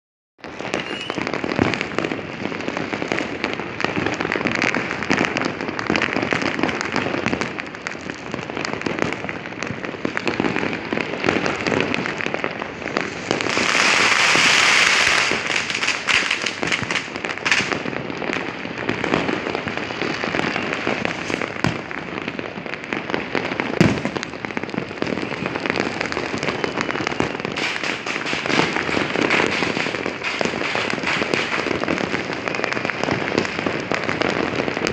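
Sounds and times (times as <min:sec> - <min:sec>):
fireworks popping and crackling: 0:00.4 - 0:34.9
hissing crackle: 0:09.0 - 0:34.9
sharp firework bang: 0:13.0 - 0:17.9, 0:20.9 - 0:22.2, 0:23.8 - 0:24.3, 0:27.6 - 0:32.5.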